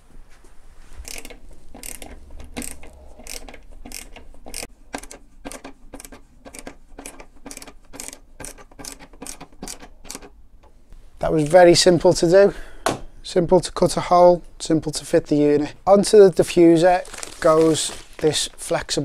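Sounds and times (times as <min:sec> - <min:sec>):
ratcheting screwdriver clicking: 0:01.0 - 0:10.3.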